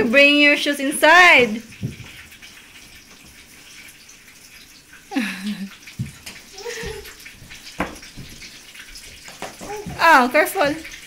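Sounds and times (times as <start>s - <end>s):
soft thumps: 1.7s - 2.2s, 6.0s - 10.2s.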